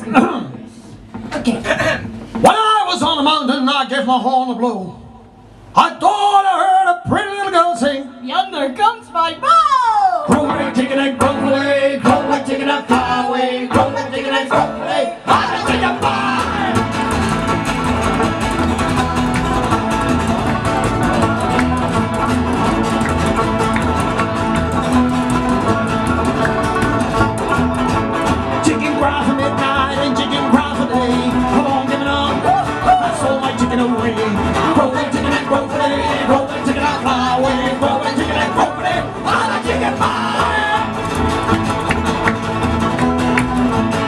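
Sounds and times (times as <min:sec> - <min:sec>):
bluegrass band playing: 0:00.0 - 0:03.8, 0:10.3 - 0:44.0
acoustic guitar: 0:00.0 - 0:04.2, 0:06.7 - 0:44.0
upright double bass: 0:10.3 - 0:44.0.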